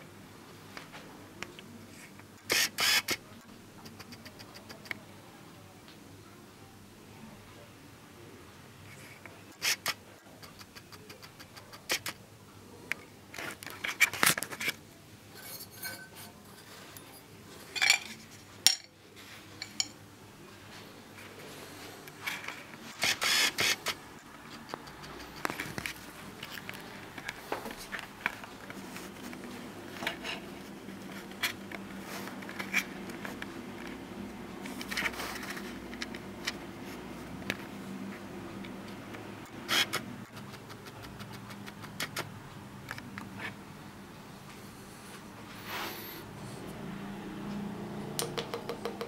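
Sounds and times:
metal objects clinking: 17.7s - 18.9s.

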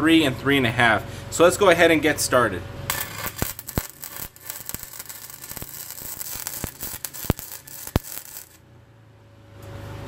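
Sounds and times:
sharp welding pops: 2.9s - 8.6s
welding arc crackling: 2.9s - 8.6s.

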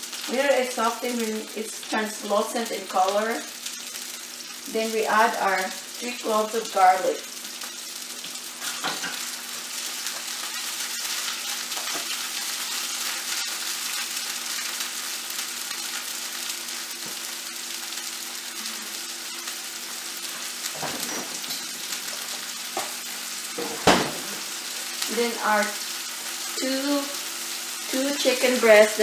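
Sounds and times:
onion and garlic sizzling in oil: 0.0s - 29.0s.

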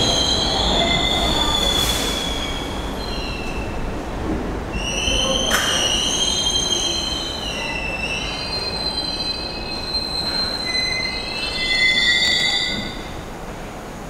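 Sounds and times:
train wheels squealing on rails: 0.0s - 3.9s, 4.7s - 13.3s
low train rumble: 0.0s - 14.0s.

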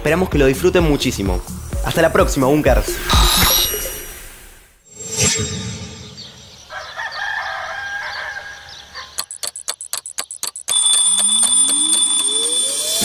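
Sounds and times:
rooster crowing: 6.7s - 9.2s
mechanical alarm clock ringing: 9.2s - 13.0s.

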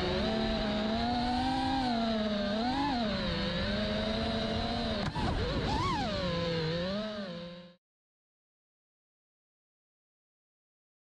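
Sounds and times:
drone motors whining: 0.0s - 7.8s.

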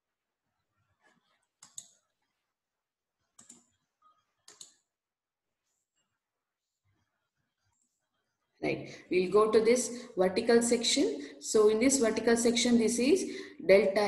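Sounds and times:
computer mouse clicks: 1.6s - 2.0s, 3.4s - 3.8s, 4.4s - 4.8s.

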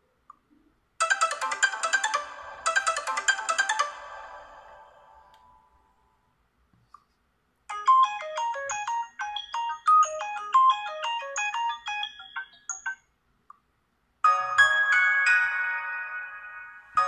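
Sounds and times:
smartphone ringtone chiming: 1.0s - 5.2s, 7.7s - 13.1s, 14.3s - 17.0s.

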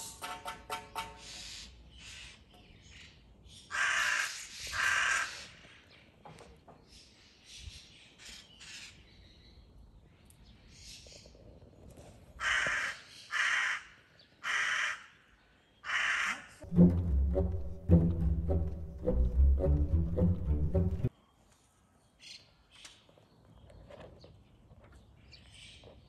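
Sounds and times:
crows cawing: 3.7s - 5.6s, 12.4s - 15.2s, 15.8s - 16.6s
orchestral music with low strings: 16.6s - 21.1s.

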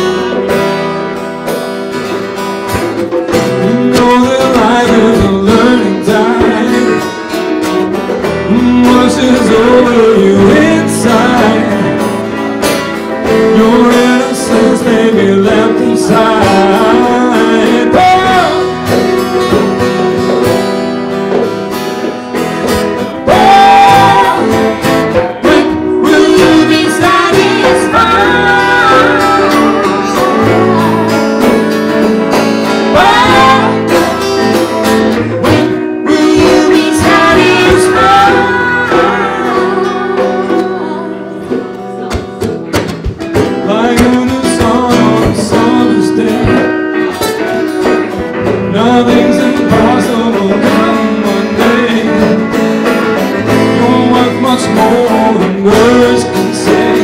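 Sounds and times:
acoustic guitars: 0.0s - 57.0s
woman singing: 23.3s - 24.6s, 25.4s - 31.6s, 32.9s - 34.2s, 36.0s - 42.5s.

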